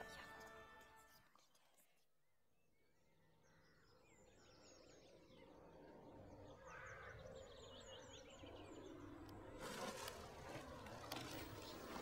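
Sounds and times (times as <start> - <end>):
low outdoor background: 0.0 - 12.0
birds chirping: 2.8 - 12.0.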